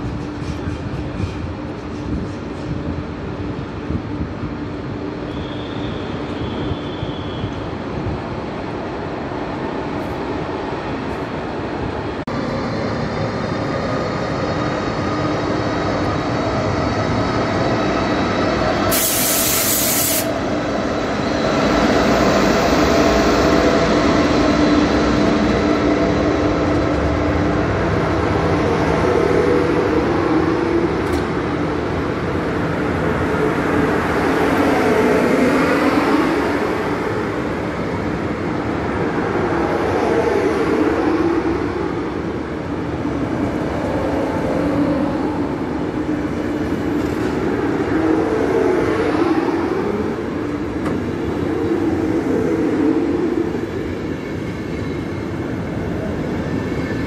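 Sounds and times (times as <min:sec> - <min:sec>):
train wheels rumbling: 0:00.0 - 0:40.1
locomotive humming drone: 0:00.0 - 0:57.0
loud hiss: 0:18.9 - 0:20.4.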